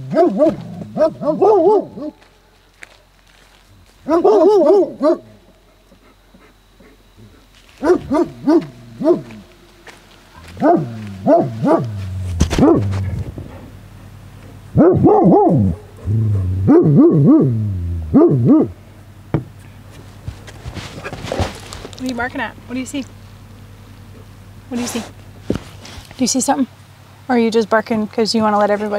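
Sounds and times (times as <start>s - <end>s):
dog barking deeply: 0.0s - 2.2s, 4.0s - 5.4s, 7.8s - 9.5s, 10.4s - 13.7s, 14.7s - 18.8s.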